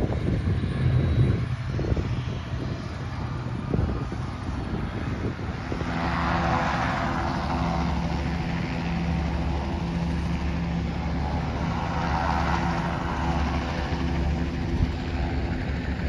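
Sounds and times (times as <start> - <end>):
broad rushing noise: 0.0 - 16.0
engine humming: 0.0 - 16.0.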